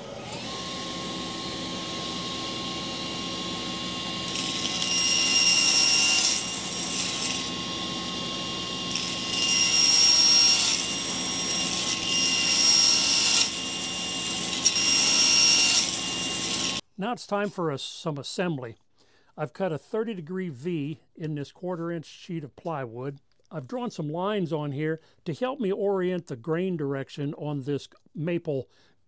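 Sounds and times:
table saw cutting wood: 0.0 - 16.8.

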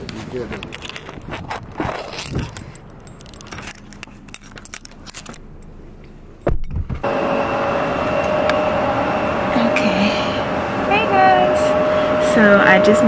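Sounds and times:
light clinking and rustling: 0.0 - 6.8
cabin air hum: 0.0 - 13.0
steady whining tones: 2.5 - 13.0.

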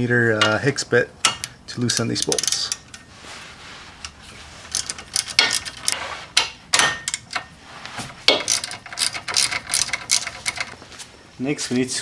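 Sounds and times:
ratchet wrench clicking: 1.3 - 3.0, 4.0 - 6.0, 8.3 - 10.8.

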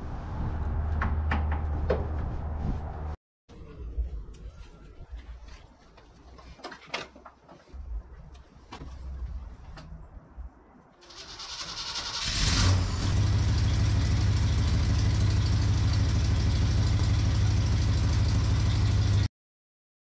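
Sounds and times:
engine starting and running: 11.0 - 19.3.

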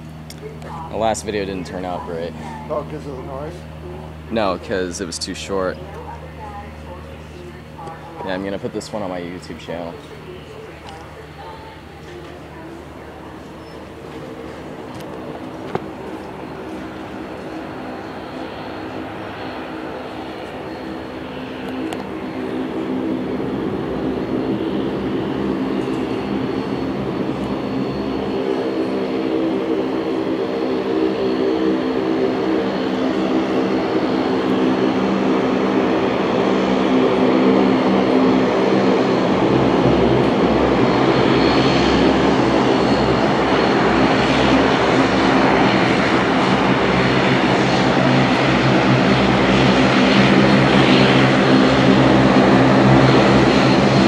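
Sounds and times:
faint high whine: 0.0 - 34.9
turboprop engines droning: 0.0 - 54.0.

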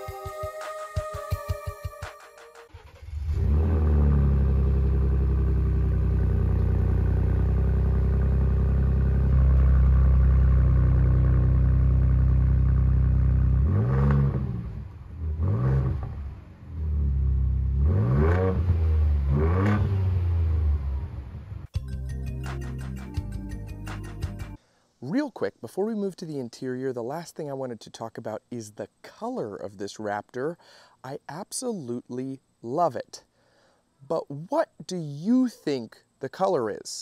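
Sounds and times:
car engine revving: 2.7 - 21.6.

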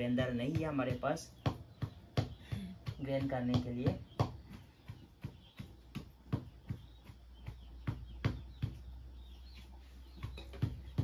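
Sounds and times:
wooden pestle pounding in mortar: 0.0 - 11.0.

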